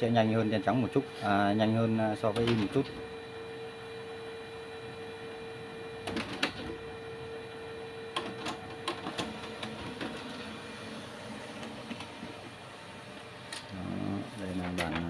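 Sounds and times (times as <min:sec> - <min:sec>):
laser printer hum: 0:00.0 - 0:15.0
printer mechanical clicks: 0:02.3 - 0:03.0, 0:06.0 - 0:06.8, 0:08.1 - 0:10.4, 0:14.5 - 0:15.0.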